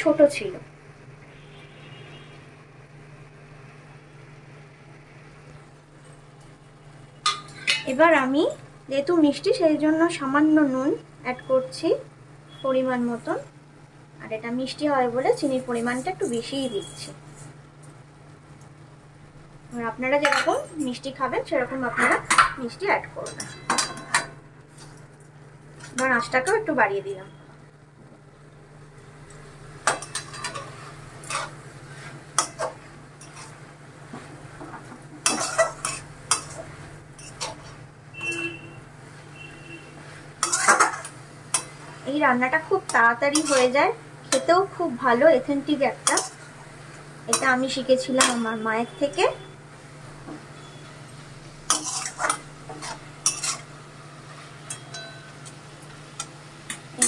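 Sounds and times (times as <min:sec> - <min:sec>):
metal spatula scraping a pan: 0:29.9 - 0:33.6, 0:35.2 - 0:38.7, 0:39.3 - 0:41.8, 0:42.9 - 0:43.8, 0:46.0 - 0:46.5, 0:51.7 - 0:55.2
steel spatula scraping metal pan: 0:40.4 - 0:41.7, 0:43.3 - 0:43.7, 0:51.7 - 0:53.7.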